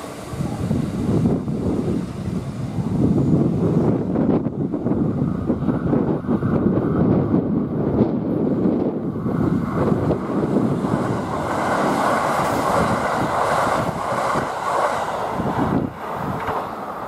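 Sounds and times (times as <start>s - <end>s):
train passing at speed: 0.0s - 17.0s.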